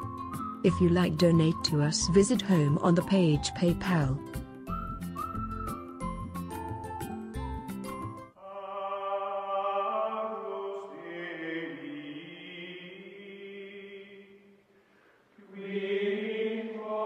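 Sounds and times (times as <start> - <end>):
choir-like chanting voices: 8.4 - 14.5, 15.4 - 17.0.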